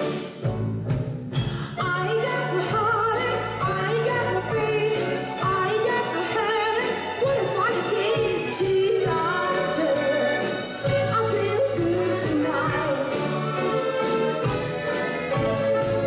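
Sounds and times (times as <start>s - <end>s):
mandolin: 0.0s - 16.0s
string orchestra: 0.0s - 16.0s
woman singing: 1.5s - 13.9s.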